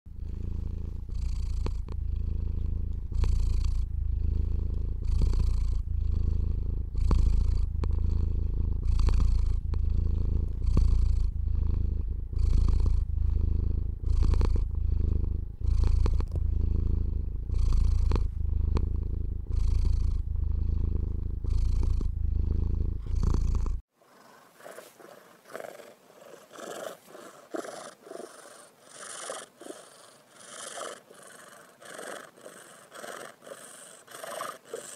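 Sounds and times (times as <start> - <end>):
soft pulses: 0.1 - 23.8
cat purring: 0.1 - 34.9.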